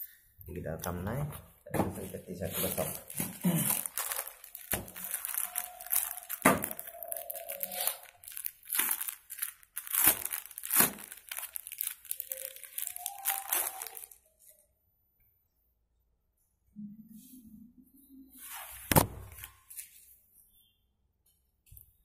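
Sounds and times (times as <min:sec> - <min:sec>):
plastic bag crinkling: 0:02.0 - 0:14.3.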